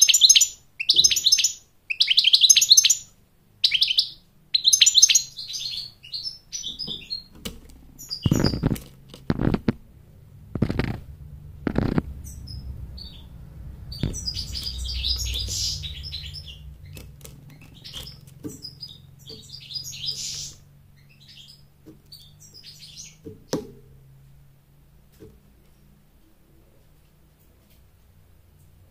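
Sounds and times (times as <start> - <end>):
goldfinch twittering: 8.0 - 8.7, 11.7 - 23.2
wings fluttering thumps: 8.2 - 18.8.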